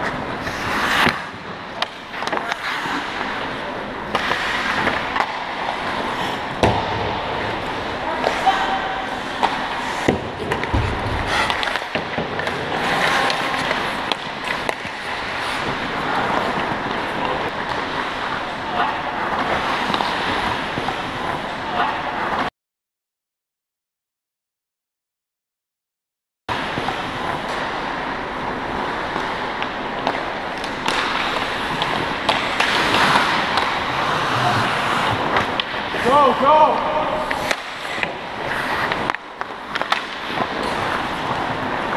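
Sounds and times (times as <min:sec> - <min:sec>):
hockey sticks and puck clacking: 0:00.0 - 0:22.5, 0:26.5 - 0:41.9
skate blades scraping ice: 0:00.0 - 0:22.5, 0:26.5 - 0:41.9
skates hissing on ice: 0:00.4 - 0:01.3, 0:11.2 - 0:11.9.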